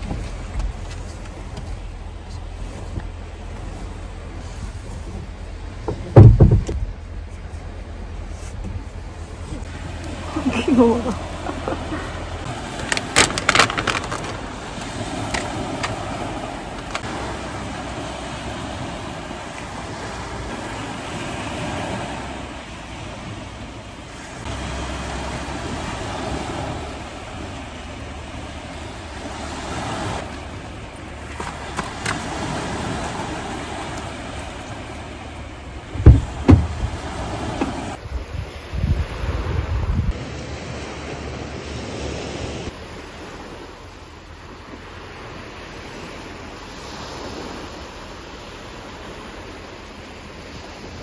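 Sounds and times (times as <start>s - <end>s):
small waves: 0.0s - 51.0s
wind rumble on microphone: 0.0s - 51.0s
loud low thumps: 5.8s - 7.0s, 35.9s - 37.0s.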